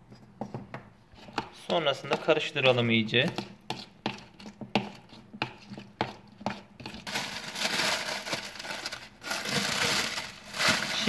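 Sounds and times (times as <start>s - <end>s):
plastic bag rustling: 6.8s - 11.0s.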